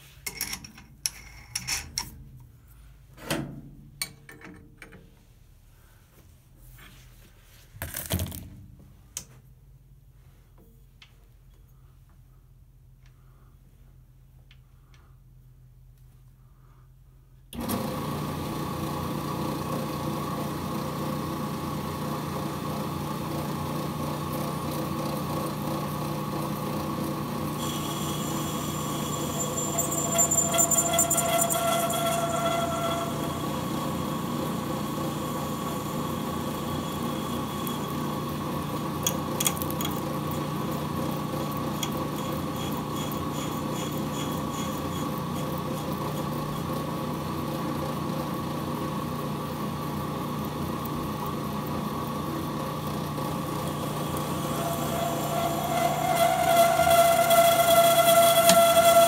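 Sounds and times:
lathe cutter ringing: 0:27.6 - 0:34.4, 0:35.3 - 0:38.2, 0:41.8 - 0:46.6, 0:54.0 - 0:59.0
brake lathe motor hum: 0:27.6 - 0:34.6, 0:41.6 - 0:46.9, 0:53.7 - 0:59.0.

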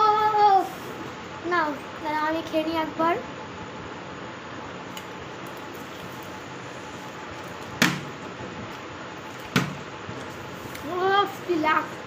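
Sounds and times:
steady background hiss: 0:00.0 - 0:12.0
plastic bottle knocking on floor: 0:09.5 - 0:09.8.

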